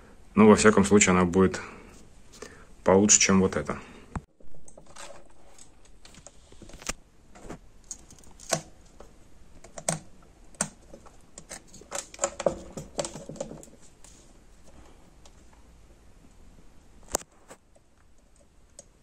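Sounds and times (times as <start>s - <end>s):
small parts clicking and tapping: 7.8s - 14.2s.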